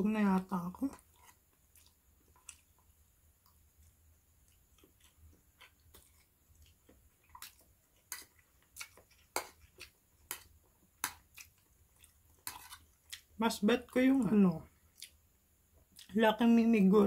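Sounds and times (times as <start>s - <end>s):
person chewing food: 0.8s - 13.4s, 14.7s - 16.2s.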